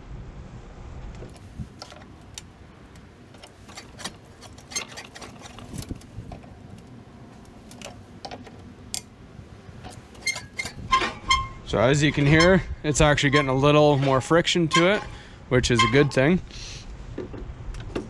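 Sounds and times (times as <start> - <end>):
reel mower blades clicking: 1.3 - 9.1, 9.8 - 15.1.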